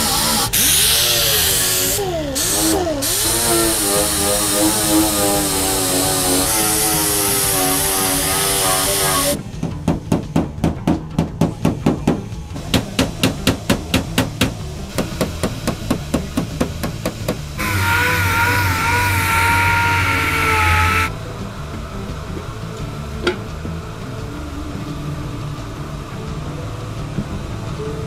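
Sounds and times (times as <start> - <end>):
machine whine: 0.0 - 9.6, 12.3 - 28.0
hammer beating on sheet metal: 6.9 - 19.0.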